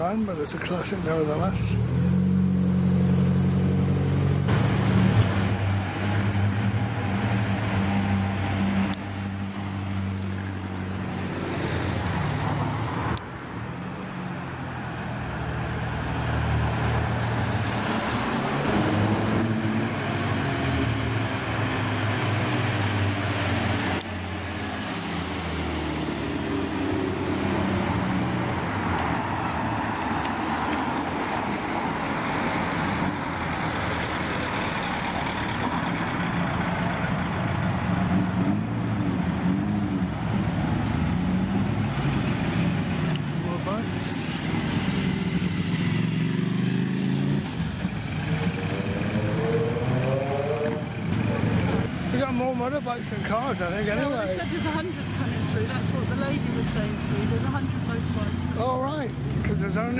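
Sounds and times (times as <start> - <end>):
classic cars driving past: 0.4 - 59.9.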